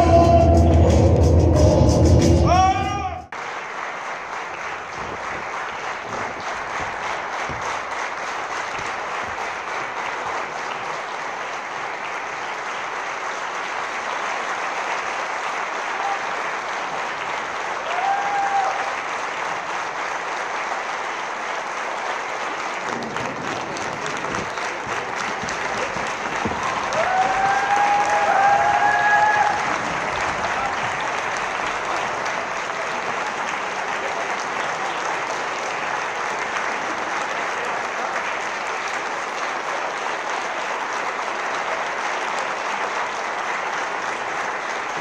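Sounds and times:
audience applauding: 0:03.3 - 0:45.0
call from the crowd: 0:14.6 - 0:19.4, 0:22.2 - 0:45.0.

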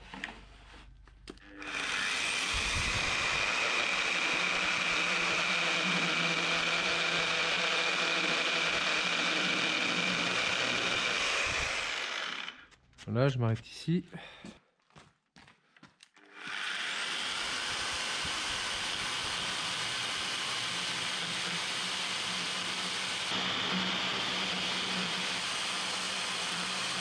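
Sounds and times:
electric chainsaw cutting wood: 0:01.4 - 0:12.7, 0:16.2 - 0:27.0.

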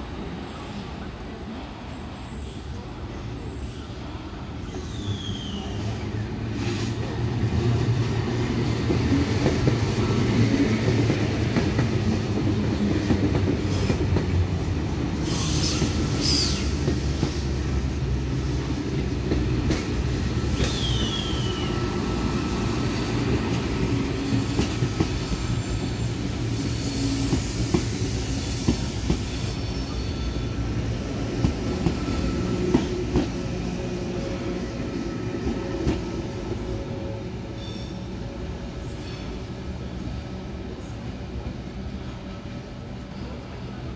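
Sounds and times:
train wheels rumbling on rails: 0:01.8 - 0:43.9
high wheel squeals: 0:37.5 - 0:38.2.

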